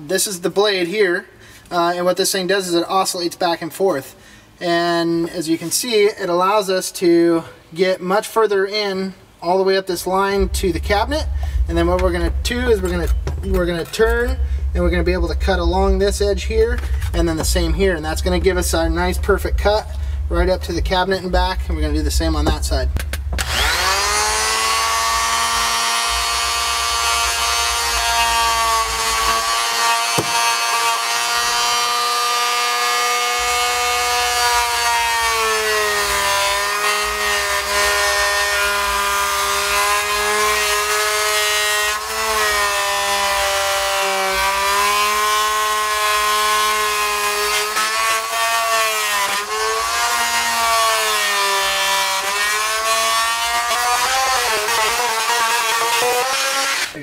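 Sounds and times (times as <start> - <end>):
oscillating multi-tool cutting wood: 18.2 - 57.0.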